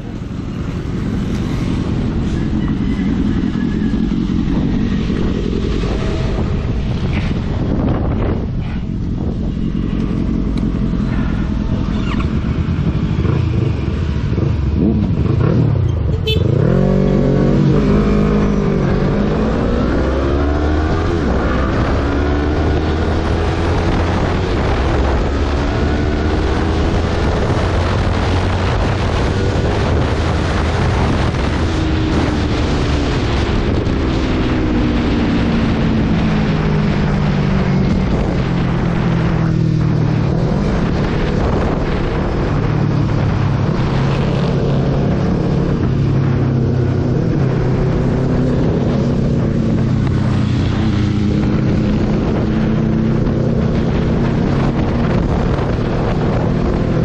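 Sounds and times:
motorcycle engine accelerating: 0.0s - 57.0s
wind noise: 0.0s - 57.0s.

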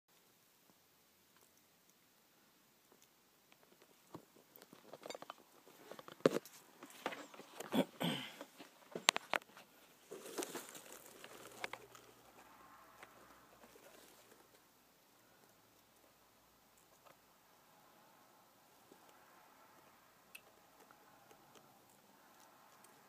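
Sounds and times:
rustling of leaves and plastic: 8.4s - 14.6s.

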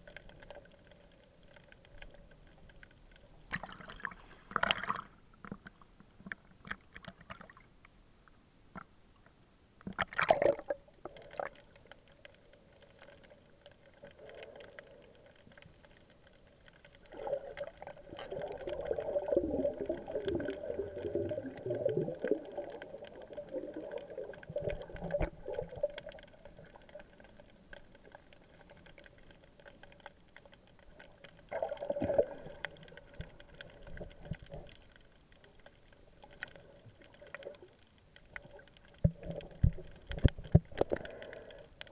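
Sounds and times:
muffled underwater bubbling and gurgling: 15.8s - 30.0s, 30.6s - 41.9s.

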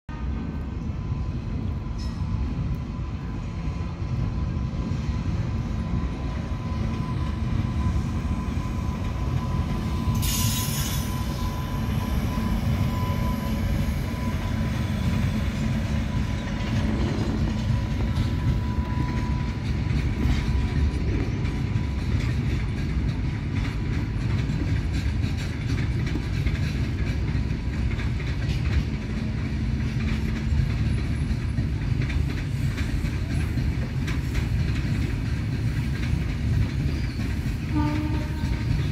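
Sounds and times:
train wheels clattering on rails: 0.1s - 38.9s
brief high hiss: 10.2s - 11.1s.

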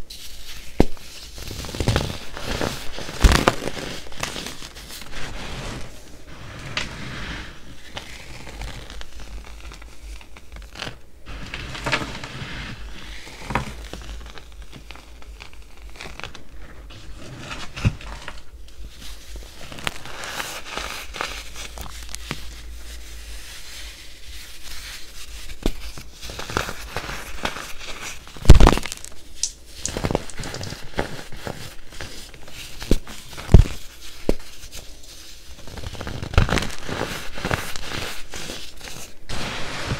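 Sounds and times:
baking soda crunching: 19.1s - 34.2s.

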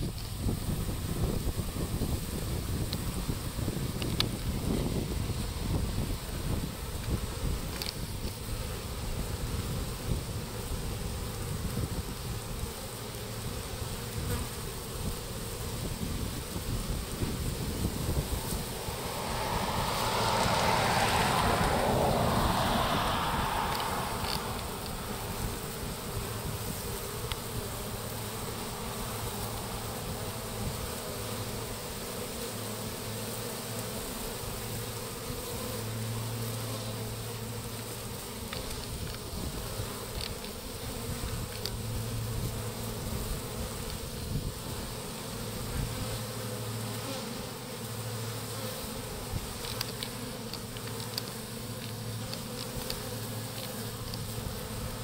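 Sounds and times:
bees humming: 4.6s - 55.0s.

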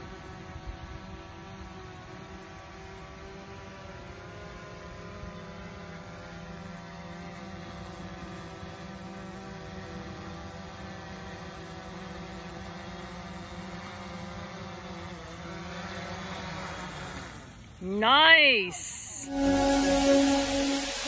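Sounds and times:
quadcopter drone buzzing: 0.0s - 17.8s.

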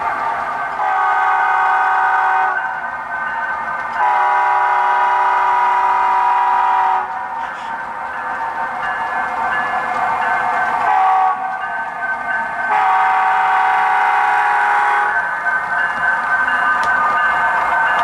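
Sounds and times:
locomotive engine running: 0.0s - 18.0s
model locomotive horn chord: 0.8s - 2.6s, 4.0s - 7.2s, 10.9s - 11.4s, 12.7s - 15.1s.

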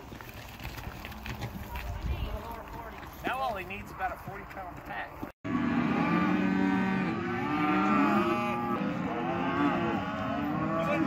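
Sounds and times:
cattle mooing: 5.5s - 11.0s.

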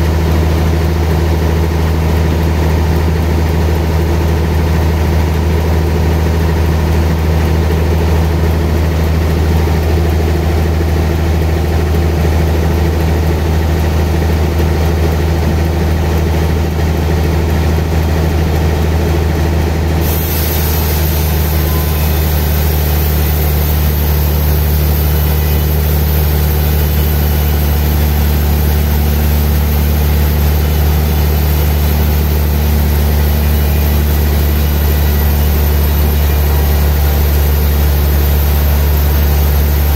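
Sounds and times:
band saw cutting log: 20.0s - 39.9s
bright hiss: 20.0s - 39.9s.

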